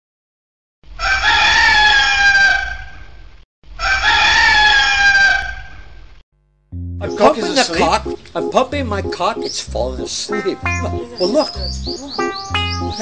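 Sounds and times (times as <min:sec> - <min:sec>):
rooster crowing: 0:01.0 - 0:02.9, 0:03.8 - 0:05.7.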